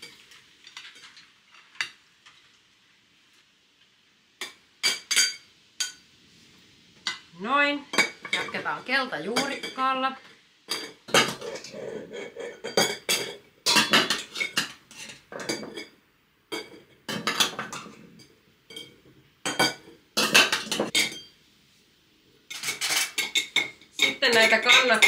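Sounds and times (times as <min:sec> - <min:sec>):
kitchen utensils clinking: 0:04.4 - 0:06.0, 0:07.9 - 0:09.9, 0:10.7 - 0:21.4, 0:22.5 - 0:25.0.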